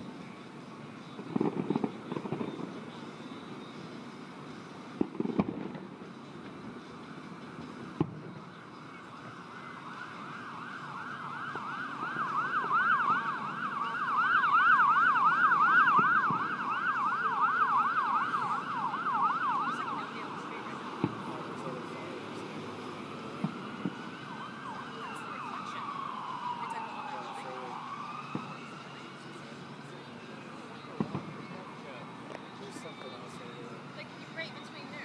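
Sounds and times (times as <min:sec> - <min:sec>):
fireworks bangs: 0:01.2 - 0:03.0, 0:05.0 - 0:06.6, 0:15.7 - 0:16.8, 0:20.0 - 0:22.6, 0:31.0 - 0:31.6
siren yelping: 0:09.1 - 0:29.2.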